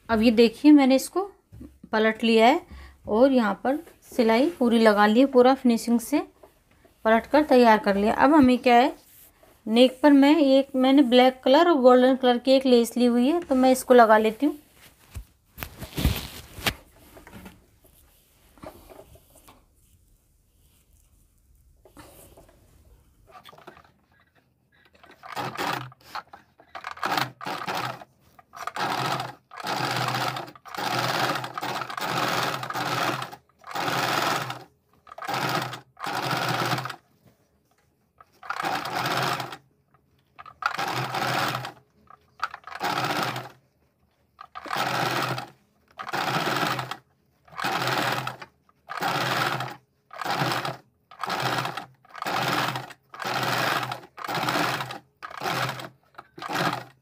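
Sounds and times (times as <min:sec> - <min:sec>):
electric sewing machine stitching: 0:24.9 - 0:37.0, 0:38.3 - 0:39.6, 0:40.4 - 0:43.6, 0:44.4 - 0:57.0.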